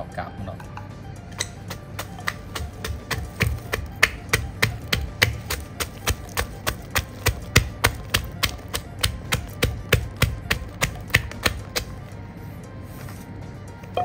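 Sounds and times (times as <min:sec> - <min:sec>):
pestle pounding in a mortar: 0:01.3 - 0:12.1.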